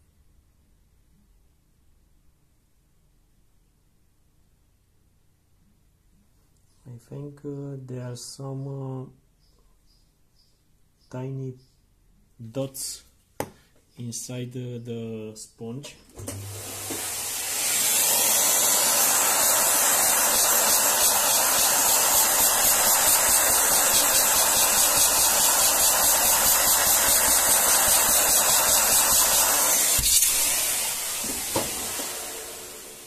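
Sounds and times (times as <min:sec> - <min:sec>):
vacuum cleaner hissing: 0:16.1 - 0:33.0
knock: 0:31.2 - 0:32.1.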